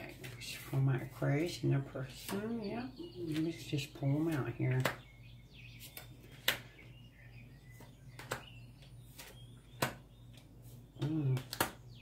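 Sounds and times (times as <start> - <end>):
cards snapping and tapping: 4.2 - 5.1, 5.8 - 6.7, 7.8 - 11.9.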